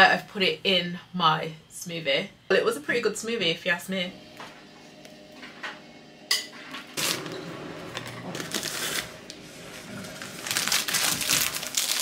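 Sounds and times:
plastic packet rustling and crinkling: 0:08.0 - 0:12.0.

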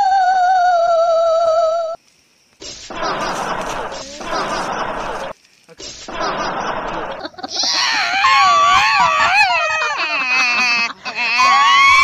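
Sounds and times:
burst of hiss-like noise: 0:02.6 - 0:07.3
high wavering screams: 0:02.6 - 0:12.0
stuttering cry falling in pitch: 0:02.8 - 0:12.0.

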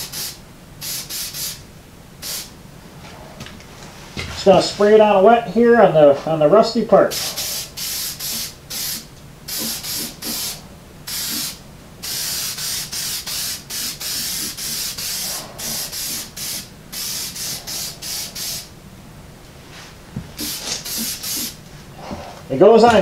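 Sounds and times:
aerosol can spraying bursts: 0:00.0 - 0:01.6, 0:02.2 - 0:02.5, 0:07.1 - 0:18.7, 0:20.4 - 0:21.6.

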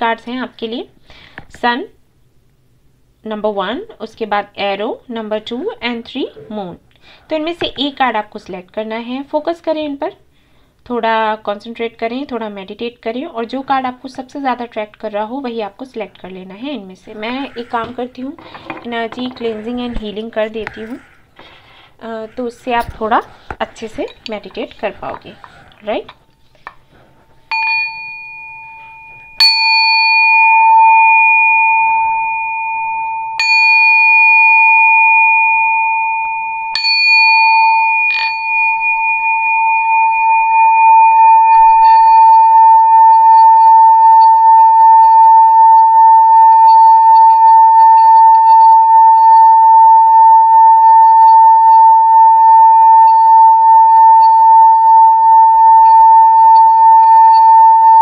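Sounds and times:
singing bowl rim ringing: 0:15.9 - 0:26.0, 0:27.4 - 0:58.0
singing bowl struck with mallet: 0:27.5 - 0:43.8.

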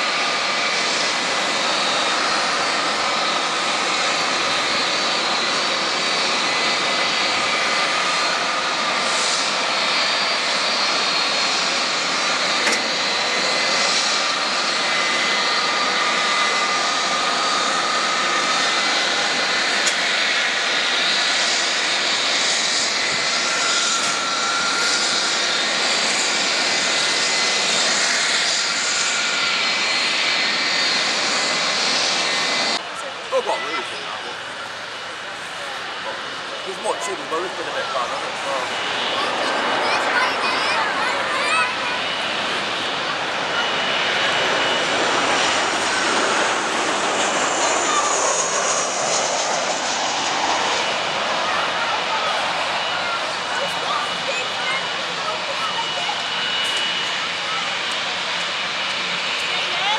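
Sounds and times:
jet engines rushing: 0:00.0 - 0:59.9.

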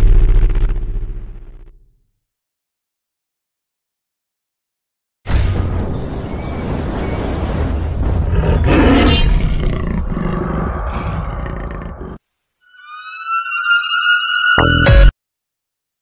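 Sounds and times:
deep rumbling noise: 0:00.0 - 0:01.8, 0:05.6 - 0:12.2.

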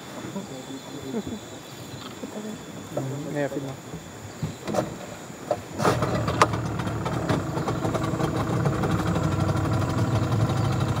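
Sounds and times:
boat motor running: 0:05.6 - 0:11.0.

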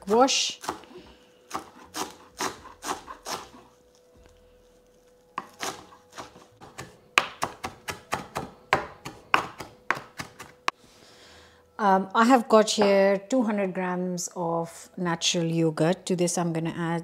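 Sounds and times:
knife chopping herbs on board: 0:00.1 - 0:03.6, 0:05.4 - 0:10.6.

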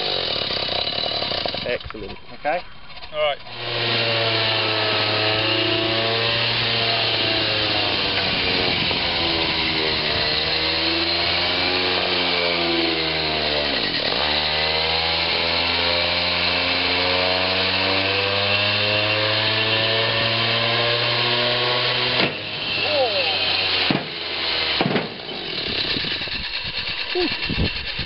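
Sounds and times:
robot motors droning: 0:00.0 - 0:28.0.

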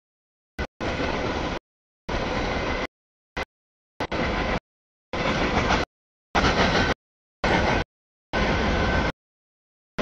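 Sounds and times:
freight train rolling by: 0:00.8 - 0:02.9, 0:04.0 - 0:09.2.

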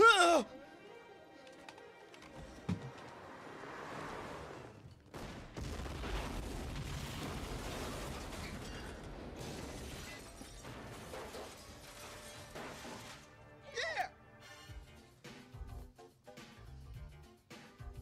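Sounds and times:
crackling clattering debris: 0:02.3 - 0:13.5
car explosion blast: 0:05.1 - 0:11.7.

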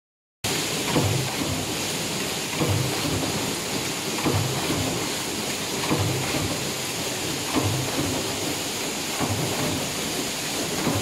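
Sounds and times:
hiss of machine noise: 0:00.5 - 0:11.0
stamping press thumps: 0:04.2 - 0:05.0, 0:05.8 - 0:06.6, 0:09.2 - 0:09.9.

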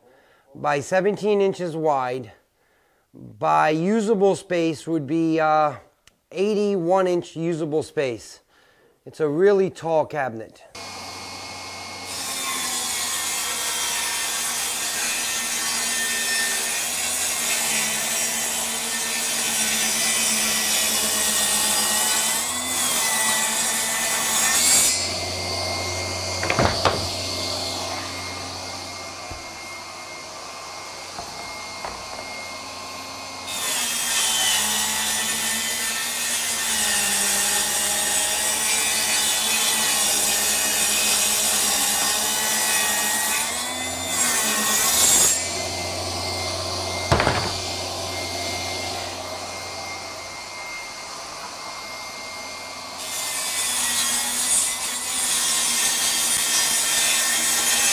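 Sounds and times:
table saw ripping boards: 0:10.8 - 0:57.9
sharp knocks: 0:26.4 - 0:27.2, 0:47.1 - 0:47.6.

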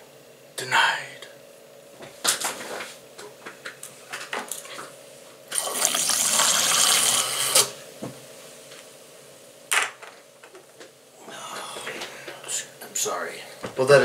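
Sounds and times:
liquid pouring into a glass: 0:05.5 - 0:07.6.

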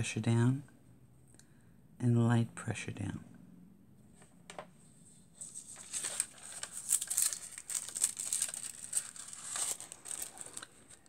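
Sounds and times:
foil sheet crinkling: 0:05.4 - 0:11.0.

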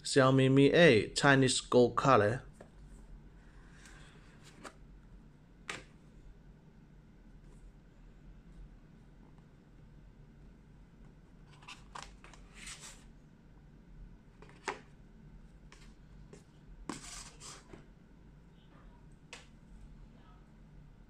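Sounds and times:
cardboard scraping and rustling: 0:11.5 - 0:13.0, 0:16.9 - 0:17.8.

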